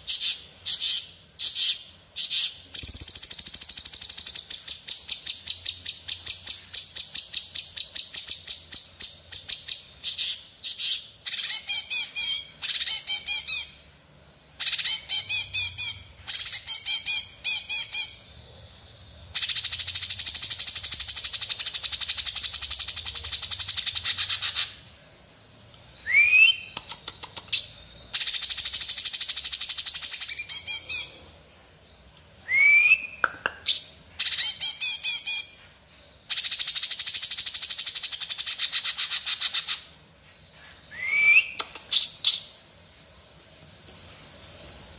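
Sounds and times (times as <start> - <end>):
bird fast high chattering song: 19.0 - 25.0, 26.2 - 31.4, 36.2 - 40.0
rising whistled bird note: 32.4 - 33.2, 40.8 - 42.4.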